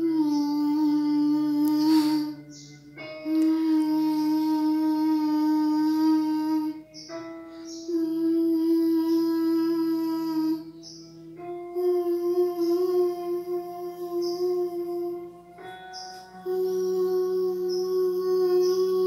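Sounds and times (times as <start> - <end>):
girl singing held notes: 0.0 - 19.0
breaths: 1.8 - 2.5, 7.4 - 7.8.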